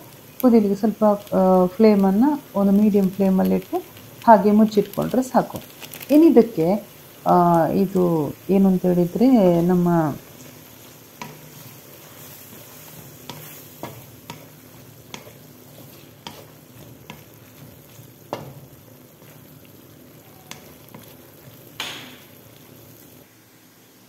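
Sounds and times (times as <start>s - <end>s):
gravy sizzling: 0.0s - 24.0s
spatula scraping metal pan: 11.2s - 17.8s.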